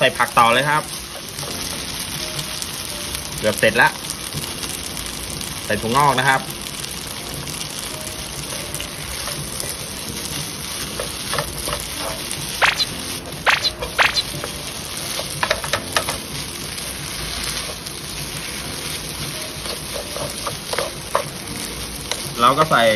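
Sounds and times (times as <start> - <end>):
noodles sizzling in a pan: 0.0 - 22.9
spatula knocking and scraping pan: 13.7 - 16.4, 18.9 - 21.4.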